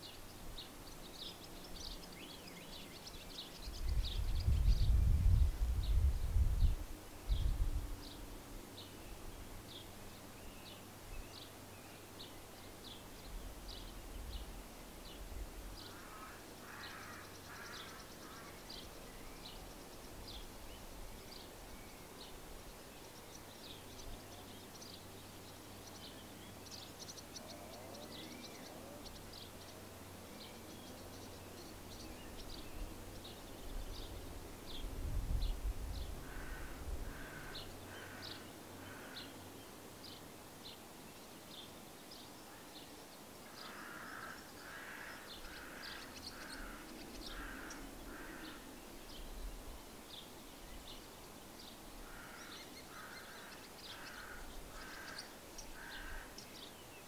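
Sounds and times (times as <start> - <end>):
harsh bird calls: 15.8 - 20.0, 43.5 - 49.0, 52.0 - 57.0
small bird chirping: 41.2 - 57.0.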